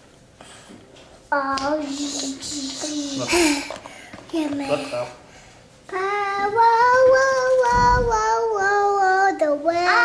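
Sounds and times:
girl singing long notes: 0:05.9 - 0:10.0.

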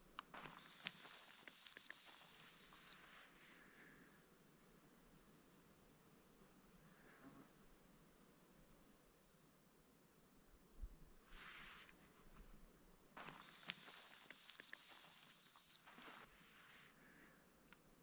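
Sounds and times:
high thin grouse whistles: 0:00.4 - 0:03.1, 0:13.2 - 0:16.3.

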